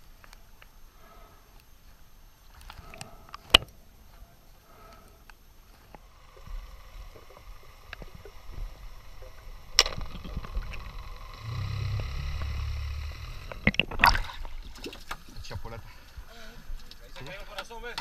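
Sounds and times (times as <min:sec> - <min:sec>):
small underwater clicks: 0:04.9 - 0:15.3
boat motor hum underwater: 0:05.6 - 0:15.0
low underwater rumble: 0:05.9 - 0:14.8.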